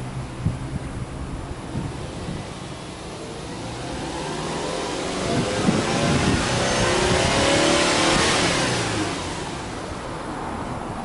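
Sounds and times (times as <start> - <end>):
car engine revving: 1.0 - 10.9.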